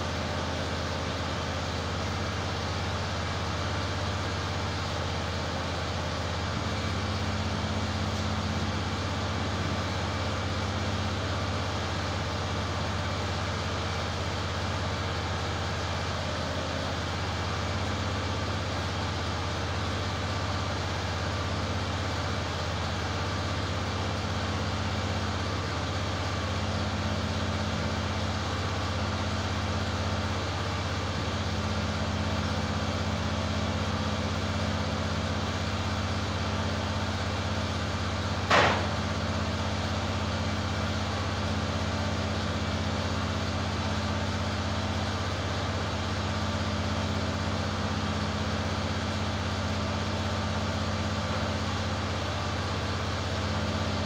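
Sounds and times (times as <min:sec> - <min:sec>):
gasoline engine running: 0:00.0 - 0:54.0
sharp knock: 0:38.5 - 0:39.0.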